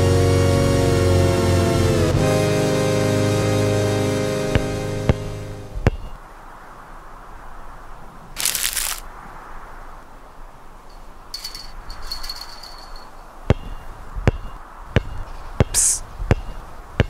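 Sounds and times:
basketball bouncing: 5.8s - 6.2s, 13.5s - 16.6s
short hiss: 8.4s - 9.1s.

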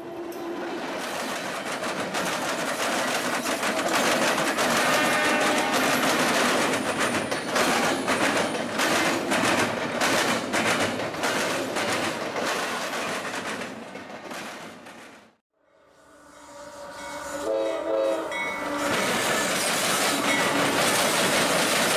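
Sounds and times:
wheels clattering over rail joints: 1.0s - 15.1s, 18.8s - 21.9s.

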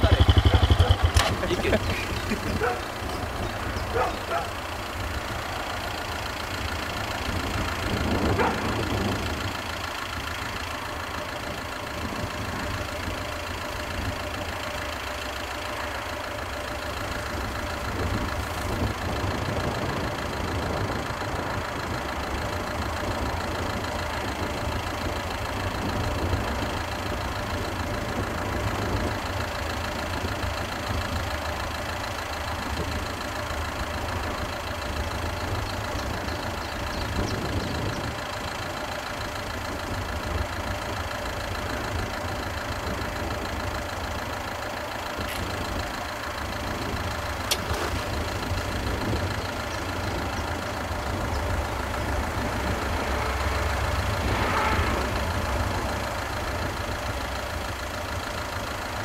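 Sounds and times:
vehicle engine idling: 0.0s - 59.0s.

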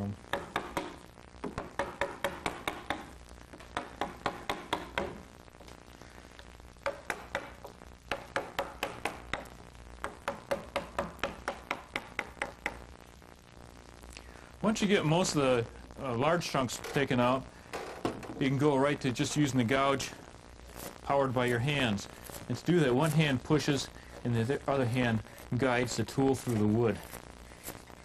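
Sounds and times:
wooden mallet tapping gouge: 0.3s - 5.3s, 6.8s - 12.8s.

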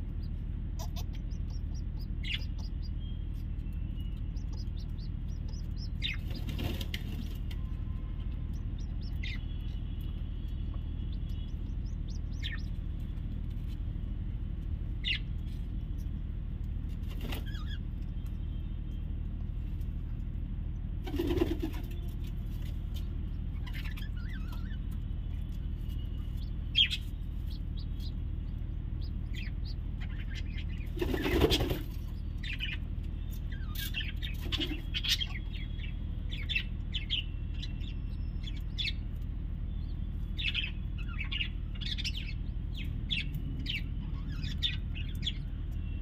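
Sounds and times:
steady low hum: 0.0s - 46.0s
pigeon squabs chirping: 0.8s - 3.0s, 29.0s - 32.8s.

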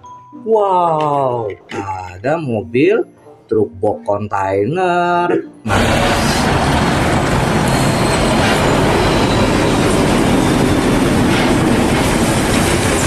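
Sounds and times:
trucks driving past: 5.7s - 13.0s.

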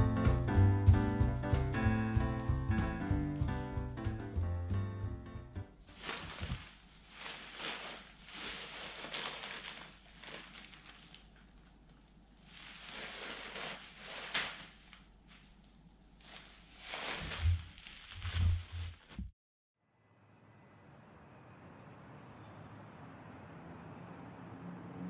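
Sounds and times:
plastic packaging crinkling: 5.9s - 19.3s
sharp plastic crackle: 5.9s - 19.3s.

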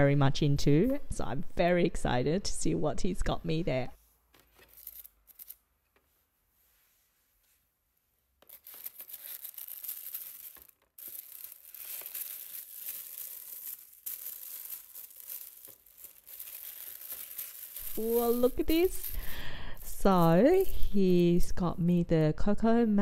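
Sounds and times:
tissue paper rustling: 8.4s - 21.6s.

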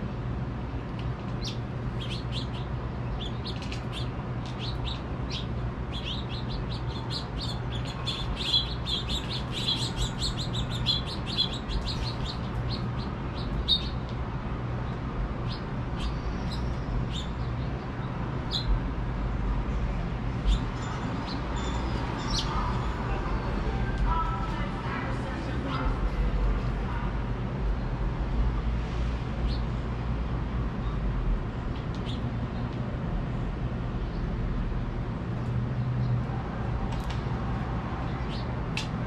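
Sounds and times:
finches chirping: 1.4s - 14.0s, 15.4s - 17.5s, 18.5s - 18.7s, 20.4s - 23.2s.

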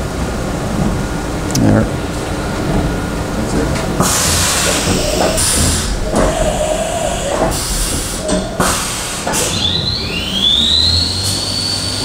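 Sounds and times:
spindle whine rising in pitch: 2.1s - 12.0s
air hiss bursts: 4.0s - 10.0s.

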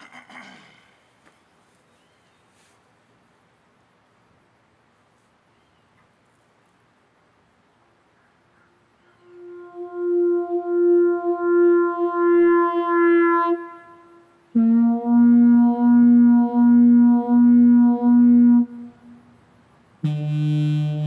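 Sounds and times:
theremin notes: 9.2s - 13.5s, 14.6s - 19.2s, 20.0s - 21.0s.

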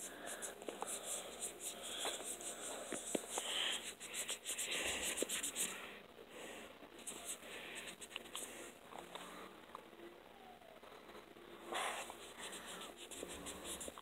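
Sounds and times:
wipe scratchy rubbing: 0.0s - 5.8s, 7.0s - 8.5s, 11.7s - 14.0s.

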